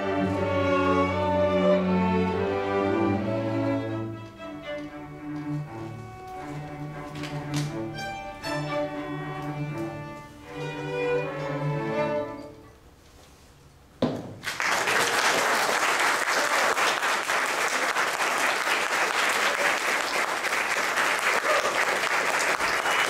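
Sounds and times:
audience applause: 14.4s - 23.0s.

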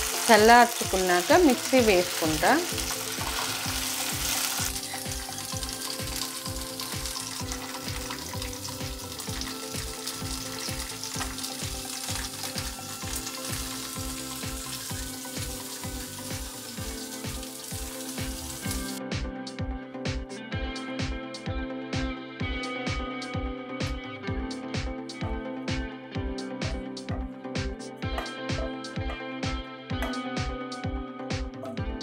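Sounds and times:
chillies sizzling in hot oil: 0.0s - 19.0s
background music with steady beat: 0.0s - 32.0s.

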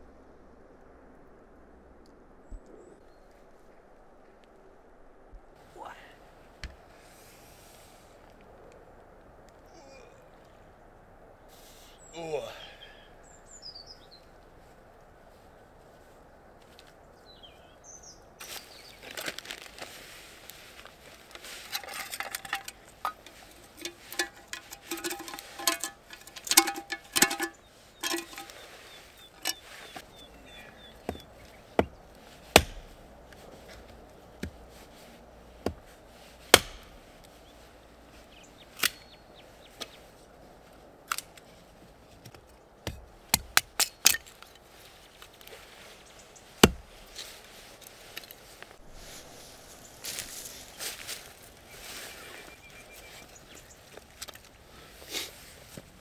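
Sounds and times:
hatchet chopping wood: 31.0s - 33.0s, 35.6s - 37.1s, 42.8s - 44.3s, 46.6s - 47.1s.

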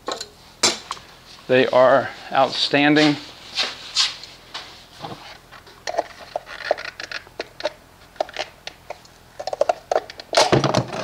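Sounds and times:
metal canister clicks and scrapes: 5.0s - 11.0s.

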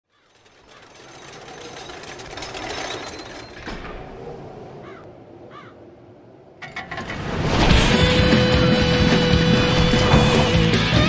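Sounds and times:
roller coaster chain lift clacking: 0.1s - 4.2s, 6.6s - 11.0s.

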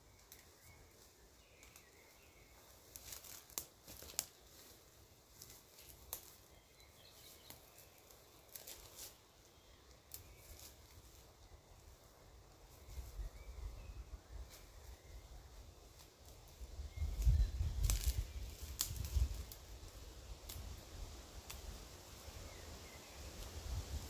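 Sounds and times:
leafy branches rustling: 0.0s - 24.0s.

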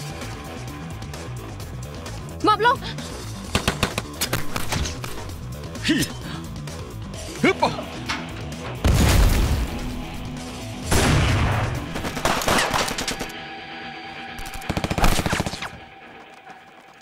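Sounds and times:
film music: 0.0s - 17.0s
heavy booming gunshots: 8.8s - 10.2s, 10.8s - 13.3s, 14.7s - 15.8s
automatic gunfire bursts: 14.6s - 15.7s.

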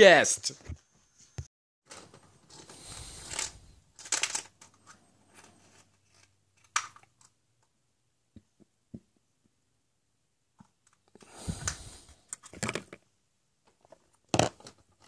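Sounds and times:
plastic eggs rattling: 1.9s - 7.4s.

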